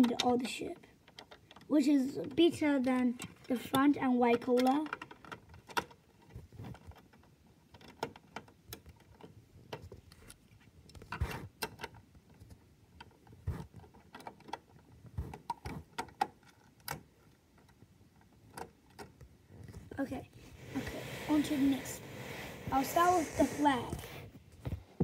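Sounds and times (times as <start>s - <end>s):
plastic bricks clicking together: 2.9s - 10.0s.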